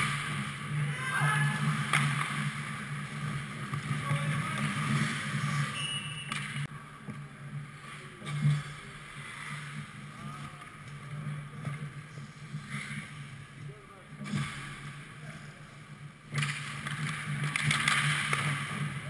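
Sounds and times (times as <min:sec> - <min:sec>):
short high whistle: 0:05.7 - 0:06.3.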